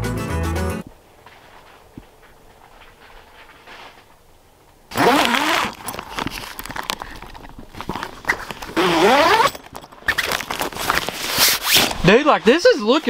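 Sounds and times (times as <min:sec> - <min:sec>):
tent fabric rustling: 0:01.1 - 0:13.0
tent zipper pulled: 0:04.9 - 0:12.1.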